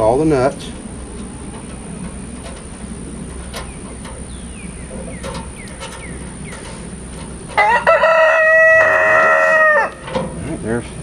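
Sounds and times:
rooster crowing: 7.5s - 10.1s.

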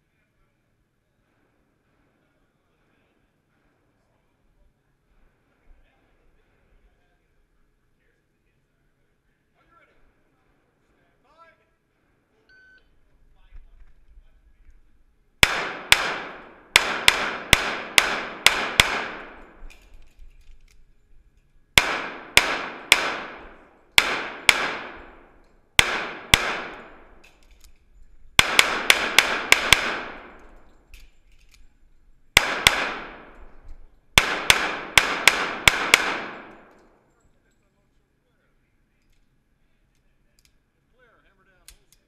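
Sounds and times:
pistol shots echoing indoors: 15.4s - 19.8s, 21.8s - 27.3s, 28.4s - 30.8s, 32.4s - 33.6s, 34.2s - 37.0s.

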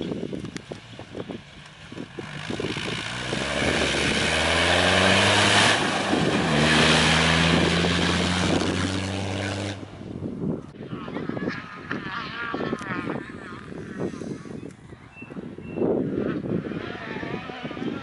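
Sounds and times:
vehicle engine driving past: 1.6s - 10.1s.

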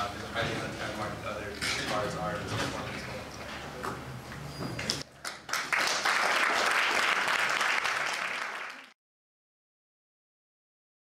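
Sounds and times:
audience applauding: 5.2s - 9.0s.

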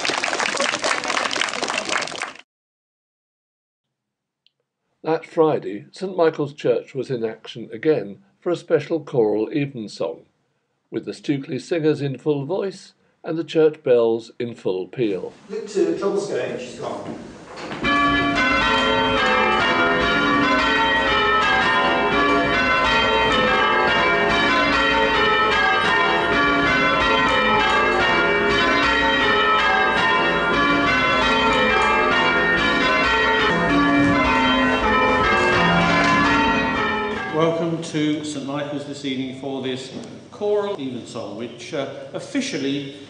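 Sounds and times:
church bells ringing: 17.8s - 39.6s.

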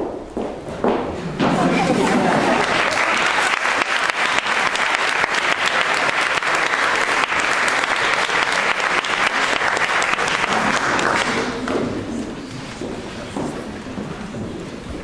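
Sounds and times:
audience applauding: 1.6s - 11.8s.

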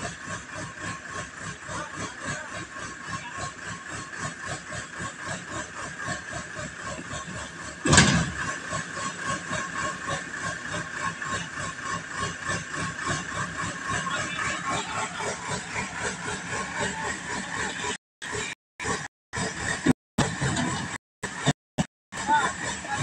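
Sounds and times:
diesel engine throbbing: 0.0s - 23.0s
loud thump: 7.8s - 8.4s.

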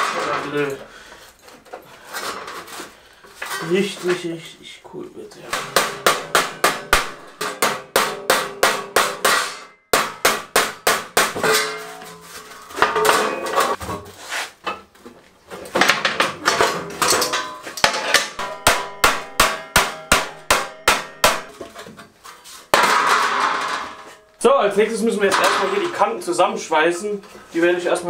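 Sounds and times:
hammer blows on sheet steel: 5.5s - 12.2s, 17.4s - 21.5s.

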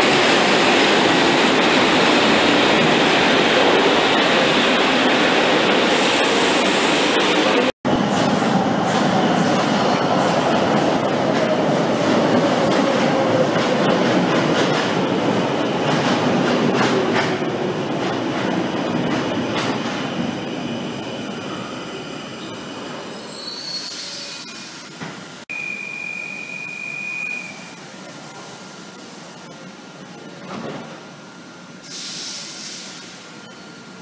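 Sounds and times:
metro train braking: 0.0s - 34.0s
brake squeal: 23.2s - 24.7s.

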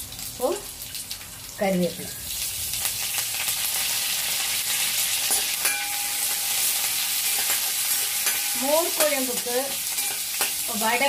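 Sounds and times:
hot oil sizzling and crackling: 0.0s - 11.0s
metal spatula scraping pan: 5.2s - 10.9s.

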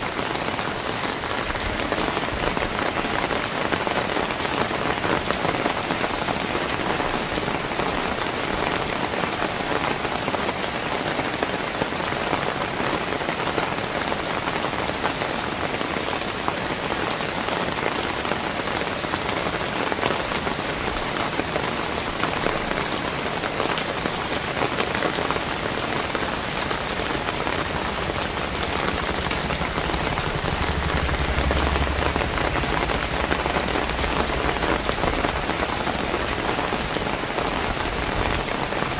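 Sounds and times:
steady rain falling: 0.0s - 38.9s
low rumble: 27.5s - 35.8s.

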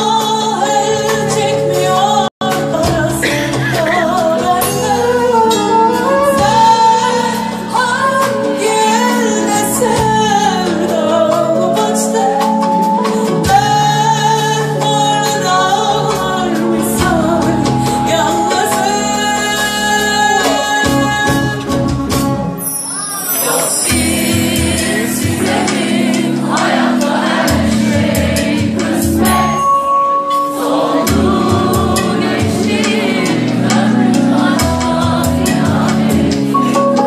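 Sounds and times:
woman singing into a microphone: 0.0s - 21.9s
band accompanying: 0.0s - 37.0s.

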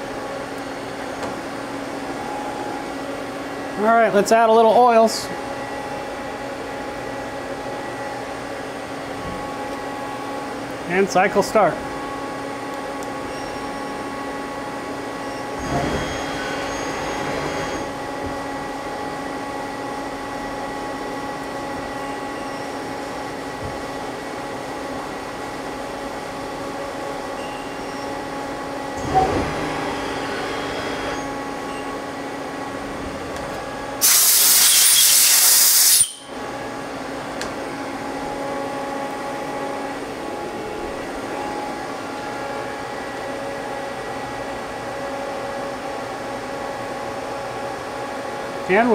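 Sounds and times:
lathe machine hum: 13.9s - 35.0s
loud hiss: 34.0s - 36.2s.

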